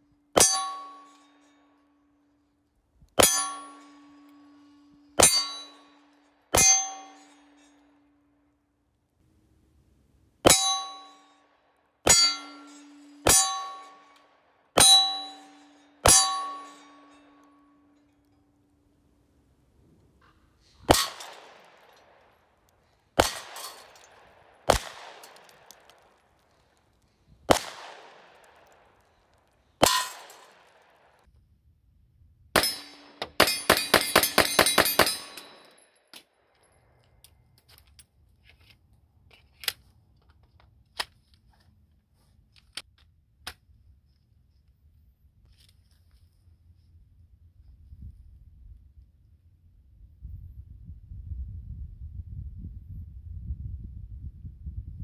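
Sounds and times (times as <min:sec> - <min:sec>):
pistol gunshots: 0:20.8 - 0:22.4, 0:23.2 - 0:26.3, 0:27.4 - 0:29.1, 0:32.6 - 0:35.7
gun handling clicks: 0:37.0 - 0:41.6.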